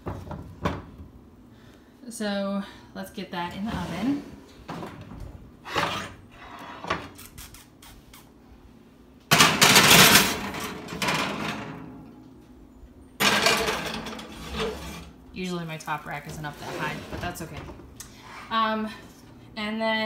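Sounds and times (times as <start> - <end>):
glass dish scraping on wire rack: 13.2 - 15.1.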